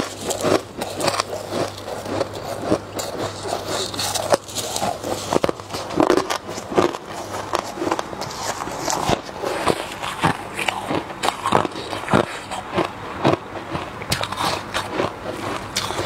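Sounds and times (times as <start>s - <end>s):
crunching frost chewing: 0.0s - 16.0s
low steady hum: 0.0s - 16.0s.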